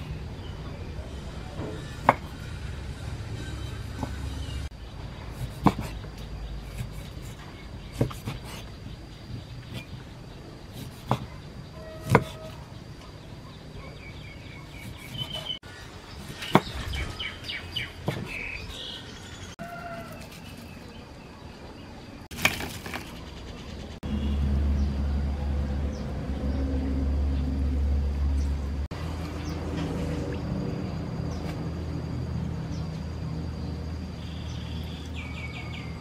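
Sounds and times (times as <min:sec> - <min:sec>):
birds chirping: 0:00.0 - 0:36.0
knife cutting on wooden board: 0:05.4 - 0:06.0, 0:06.6 - 0:10.0, 0:10.7 - 0:11.4, 0:12.0 - 0:12.6.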